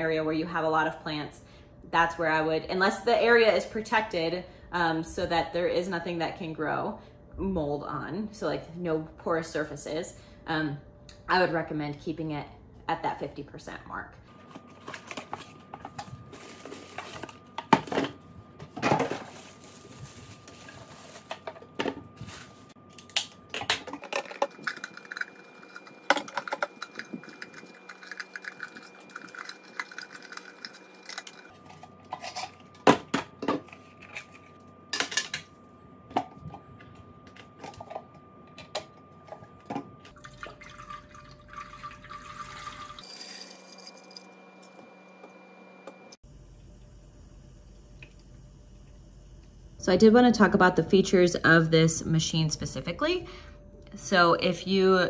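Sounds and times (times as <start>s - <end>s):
water pouring into tank: 40.1s - 44.0s.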